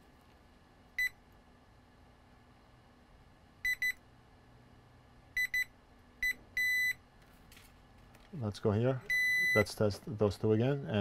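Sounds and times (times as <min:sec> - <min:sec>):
multimeter short high beeps: 0:03.6 - 0:04.0, 0:05.4 - 0:07.0, 0:09.1 - 0:09.7.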